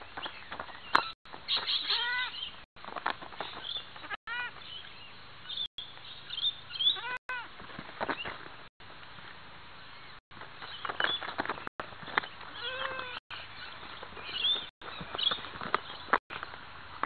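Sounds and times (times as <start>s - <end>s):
goat bleating: 1.8s - 2.3s, 12.6s - 13.2s.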